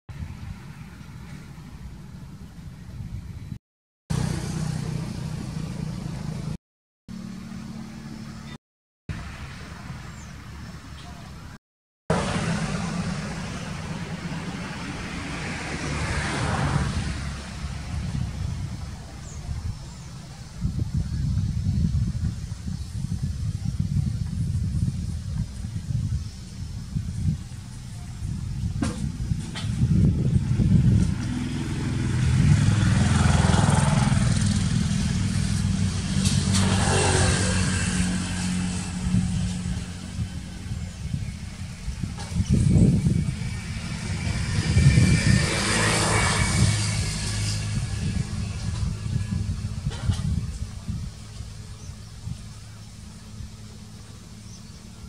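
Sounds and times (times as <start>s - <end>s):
traffic rumble: 0.1s - 55.0s
vehicle passing: 4.1s - 8.5s, 9.1s - 20.9s, 29.1s - 55.0s.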